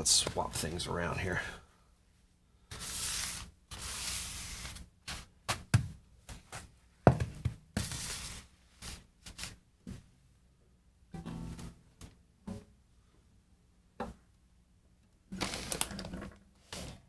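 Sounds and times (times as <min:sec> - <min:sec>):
objects scuffing and sliding on wood: 0:02.7 - 0:10.1
knocks and thumps on workbench: 0:07.1 - 0:07.6.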